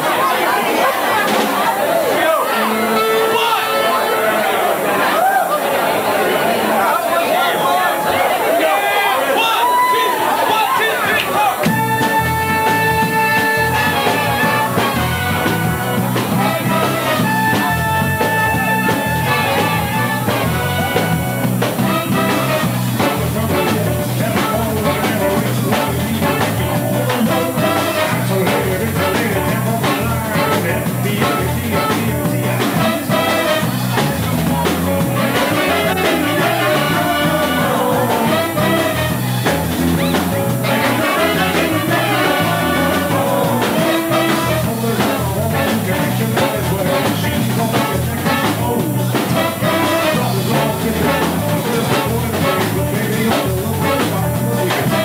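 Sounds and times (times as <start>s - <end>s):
big band playing upbeat jazz: 0.0s - 5.2s, 10.6s - 55.0s
tenor saxophone: 2.5s - 4.6s, 11.7s - 24.1s, 28.9s - 34.2s, 34.8s - 45.8s, 47.8s - 52.9s.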